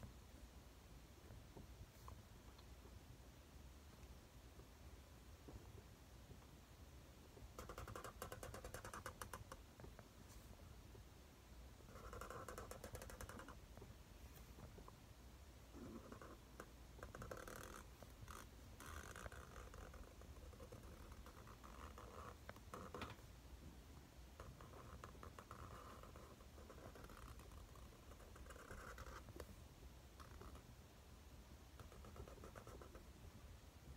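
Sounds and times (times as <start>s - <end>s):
marker scratching on paper: 7.6s - 9.6s, 11.8s - 13.6s, 17.0s - 23.0s, 24.4s - 29.4s, 31.8s - 33.0s.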